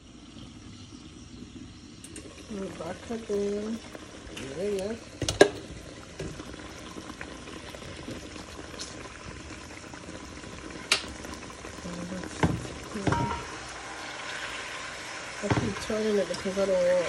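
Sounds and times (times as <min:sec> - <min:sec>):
meat simmering and bubbling: 0:00.0 - 0:17.0
utensil knocking on pan: 0:12.4 - 0:13.5.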